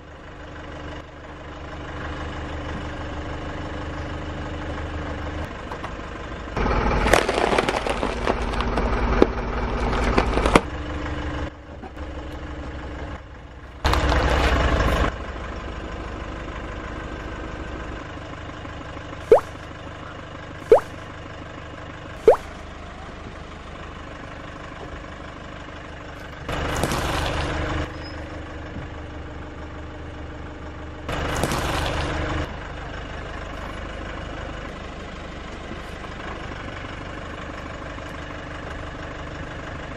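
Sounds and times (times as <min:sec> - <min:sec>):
crushing and squashing of soft toys: 0:07.0 - 0:09.0
car engine idling: 0:08.4 - 0:39.9
short sharp pops: 0:19.3 - 0:19.6, 0:20.7 - 0:21.0, 0:22.3 - 0:22.5.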